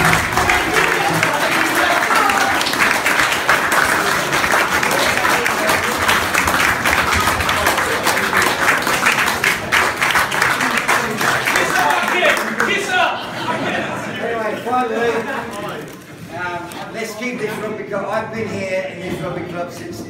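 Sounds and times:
crowd applauding: 0.0 - 13.2.

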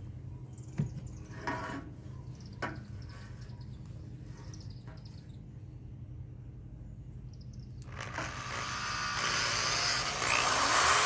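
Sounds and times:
faint chirping of birds or insects: 0.0 - 8.2
steady low hum: 0.0 - 11.0.

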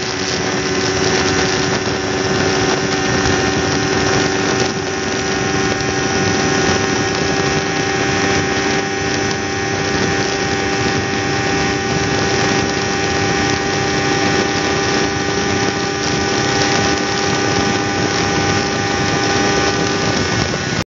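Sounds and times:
motorcycle engine droning at high revs: 0.0 - 20.8
wind noise: 0.0 - 20.8.

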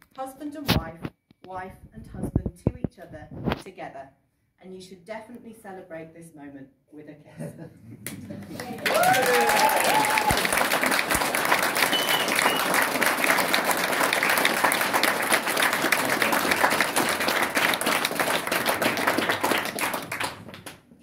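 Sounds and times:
crowd clapping: 8.0 - 20.9
crowd whooping: 8.8 - 13.4.

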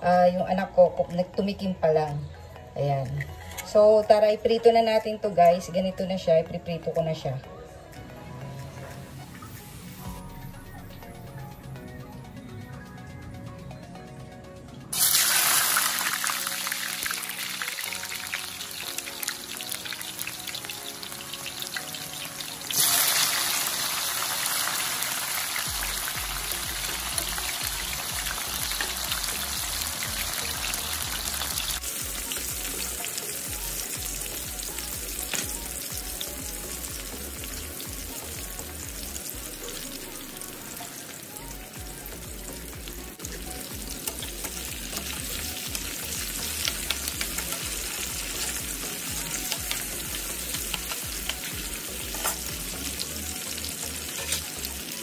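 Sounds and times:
potato slices sizzling in hot oil: 14.9 - 55.0.

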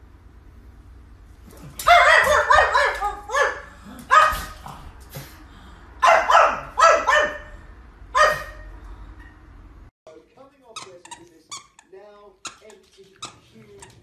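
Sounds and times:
dog barking: 1.7 - 4.6, 6.0 - 9.4.

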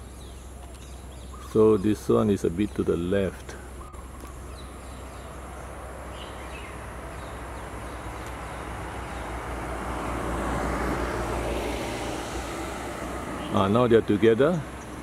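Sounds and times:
passing motor vehicle rushing: 4.7 - 15.0.

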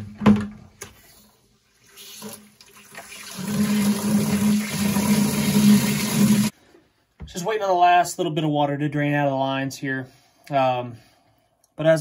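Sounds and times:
water rushing into plastic bucket: 1.9 - 6.5.

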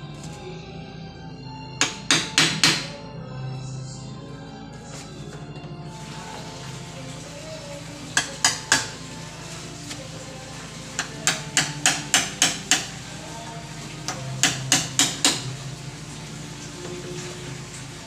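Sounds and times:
hammer tapping nails into wood: 1.8 - 2.9, 8.2 - 8.9, 11.0 - 12.9, 14.1 - 15.5.

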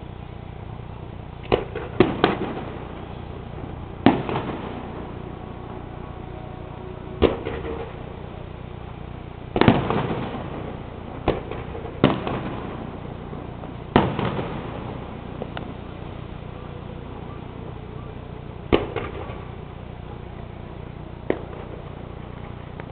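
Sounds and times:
low background noise: 0.0 - 22.9
firework bangs echoing: 1.2 - 17.6, 18.5 - 19.9, 21.2 - 22.9.

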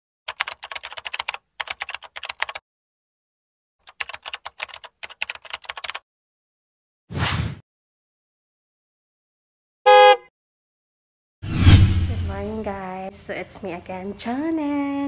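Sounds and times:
rapid keyboard typing clicks: 0.3 - 2.6, 3.8 - 6.0.

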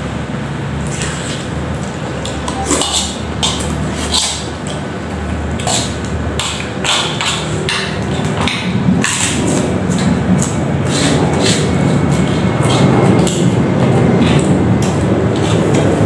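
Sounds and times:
steady low hum: 0.0 - 16.0
eating noises: 0.8 - 16.0
utensils scraping metal wok: 2.4 - 4.8, 5.6 - 13.4.

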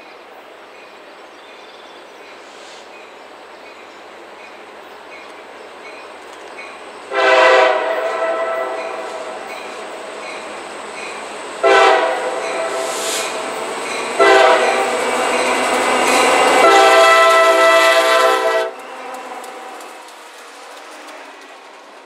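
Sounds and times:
train rumbling on rails: 0.0 - 22.0
locomotive air horn blast: 7.1 - 9.6, 11.6 - 13.5, 14.2 - 15.0, 16.2 - 18.8.

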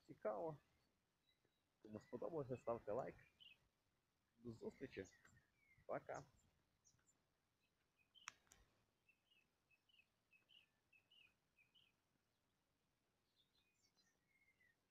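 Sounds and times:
faint bird chirps: 0.0 - 14.9
soft clicks: 8.2 - 8.8.

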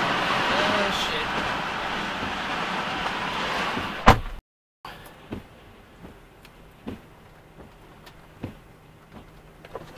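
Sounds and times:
sharp taps on car: 6.8 - 7.8, 8.4 - 9.3.

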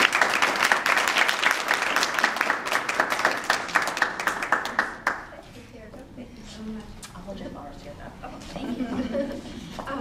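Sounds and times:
small group applauding: 0.0 - 5.4.

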